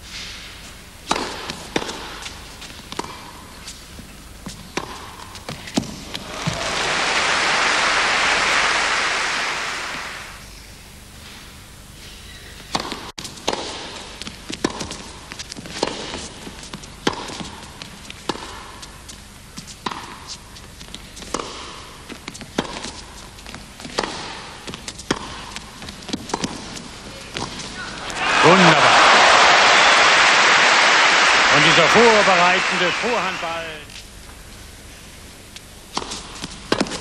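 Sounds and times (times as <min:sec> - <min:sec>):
tennis ball bouncing: 0:01.0 - 0:03.4, 0:04.4 - 0:06.6, 0:23.9 - 0:26.6, 0:35.9 - 0:37.0.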